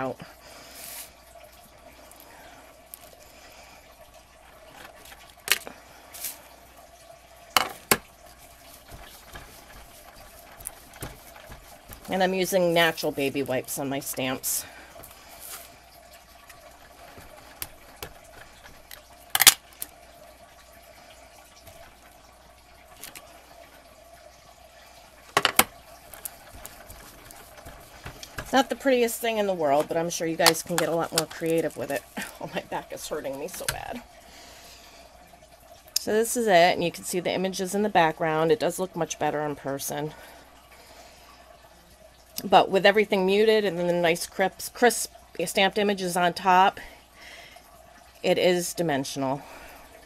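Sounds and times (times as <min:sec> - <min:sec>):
faint steady hiss: 0:00.0 - 0:50.0
rubber stamps clicking and tapping: 0:25.4 - 0:28.6.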